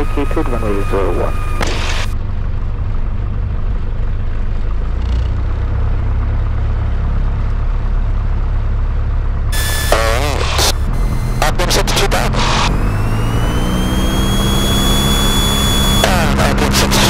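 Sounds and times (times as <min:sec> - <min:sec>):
light aircraft engine drone: 0:00.0 - 0:17.0.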